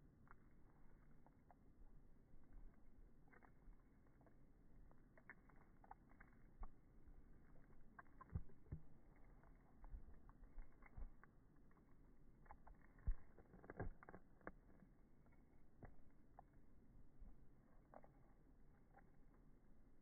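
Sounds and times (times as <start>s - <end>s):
dog gnawing on rawhide: 4.9s - 15.0s.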